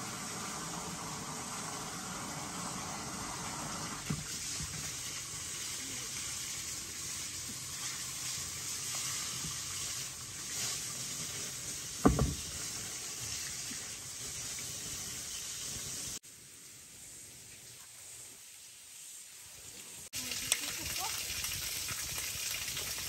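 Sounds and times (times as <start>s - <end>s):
steady hiss: 0.0s - 22.8s
dull thump: 12.0s - 12.5s.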